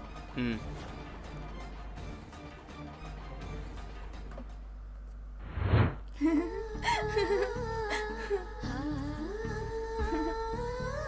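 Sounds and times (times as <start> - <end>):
whoosh: 5.4 - 6.1
woman humming a tune: 6.1 - 11.0.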